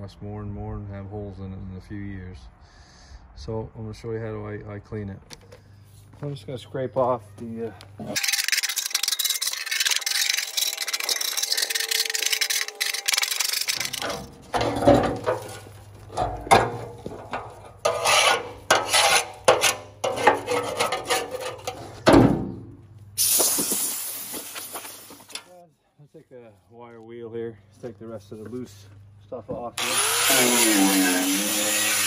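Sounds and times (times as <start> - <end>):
scraper rasping on steel: 8.2 - 14.2, 17.8 - 21.8
short scrapes: 17.5 - 22.0.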